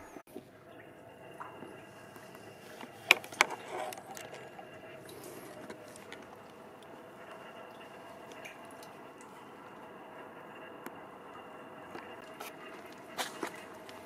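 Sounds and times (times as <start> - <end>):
faint steady hum: 0.0 - 14.0
scuffing on concrete: 12.3 - 14.0.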